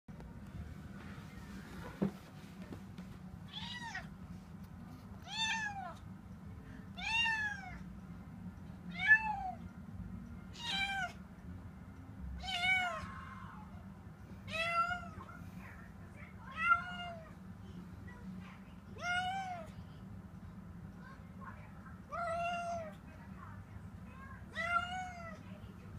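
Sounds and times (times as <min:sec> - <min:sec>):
cat meowing: 0:03.5 - 0:04.1, 0:10.5 - 0:11.2, 0:12.4 - 0:13.2, 0:16.5 - 0:17.4, 0:24.5 - 0:25.4.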